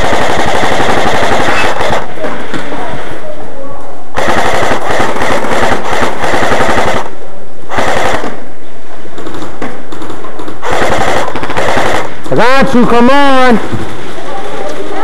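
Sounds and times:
airsoft guns firing bursts: 0.0s - 2.7s, 4.2s - 8.5s, 9.2s - 13.4s.

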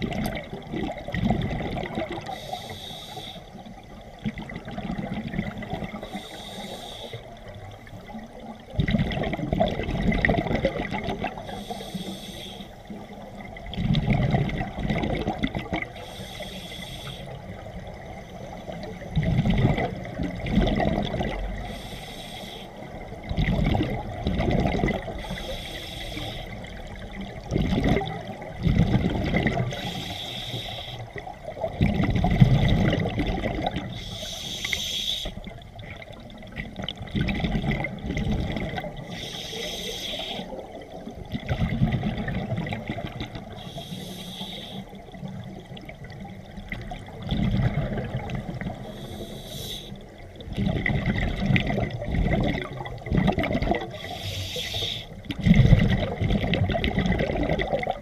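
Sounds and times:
exhaled bubbles rumbling: 0.0s - 2.4s, 3.6s - 6.4s, 7.3s - 11.8s, 12.8s - 16.0s, 17.3s - 21.8s, 22.7s - 25.6s, 26.5s - 30.1s, 31.1s - 34.2s, 35.4s - 39.4s, 40.3s - 44.1s, 44.9s - 49.3s, 50.0s - 58.0s
diver inhaling through regulator: 2.2s - 3.6s, 5.9s - 7.3s, 11.4s - 12.9s, 15.9s - 17.5s, 21.6s - 22.9s, 25.2s - 26.8s, 29.7s - 31.2s, 33.9s - 35.5s, 39.0s - 40.7s, 43.5s - 45.1s, 48.8s - 50.1s, 53.9s - 55.4s.

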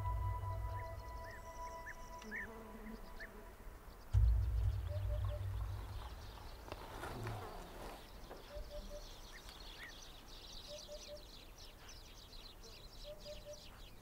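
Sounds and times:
deep low rumble: 0.0s - 2.3s, 4.2s - 6.8s
bird hooting: 0.0s - 3.4s, 4.7s - 6.2s, 8.4s - 9.2s, 10.7s - 11.3s
vegetation rustling: 0.0s - 10.2s
insects and birds chirring: 0.0s - 14.0s.

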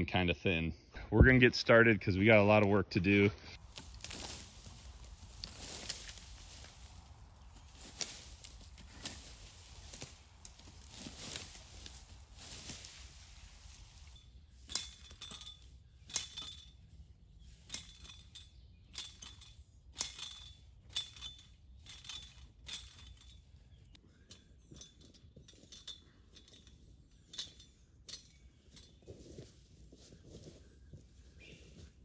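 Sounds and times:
metal tines scraping into soil: 3.1s - 29.1s
sharp metallic clinks: 3.8s - 29.2s.

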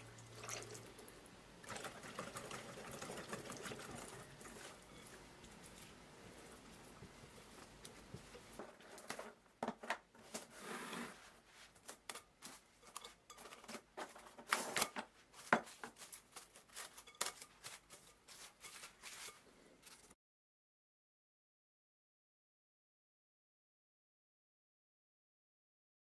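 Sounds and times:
spatula scraping glass bowl: 12.8s - 13.8s, 15.9s - 20.2s.

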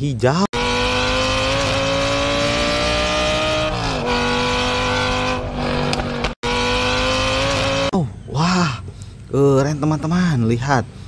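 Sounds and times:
race car engine at high revs: 0.5s - 8.0s.

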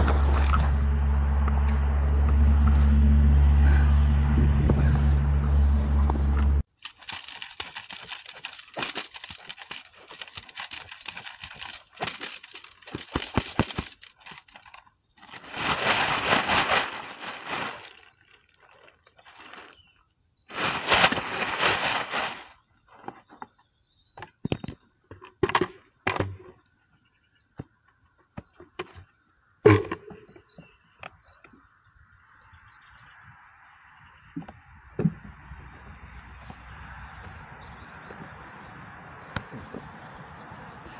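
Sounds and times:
low rumble: 0.0s - 6.6s.

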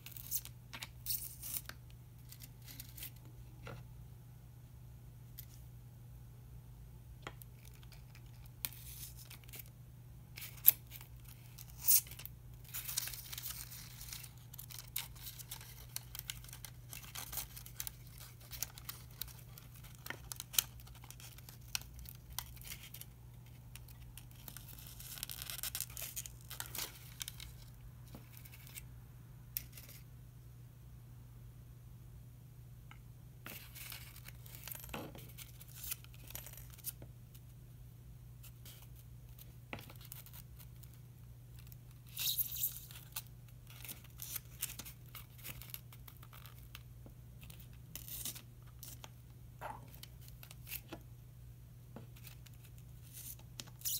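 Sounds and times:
paper rustling and crinkling: 10.4s - 28.8s.

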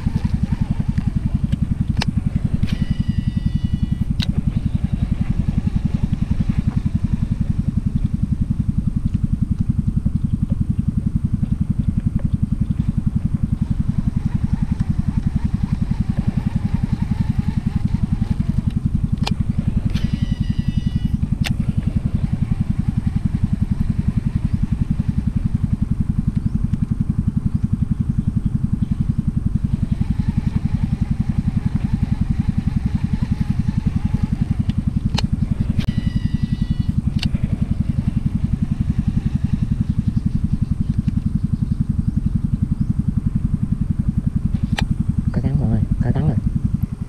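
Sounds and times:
small engine running: 0.0s - 47.0s
sharp clicks: 14.2s - 20.2s, 31.5s - 36.0s, 37.1s - 37.4s.

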